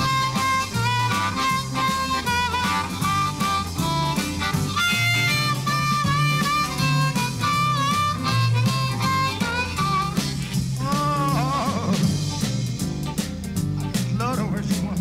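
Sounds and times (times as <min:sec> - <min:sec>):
harmonica music with bass and beat: 0:00.0 - 0:15.0.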